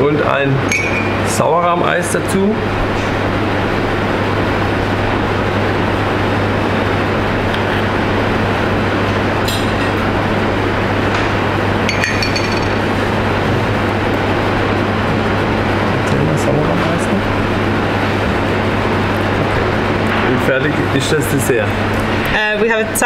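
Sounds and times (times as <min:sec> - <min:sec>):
kitchen ventilation rushing hum: 0:00.0 - 0:23.0
spoon clinking metal bowl: 0:11.9 - 0:13.0.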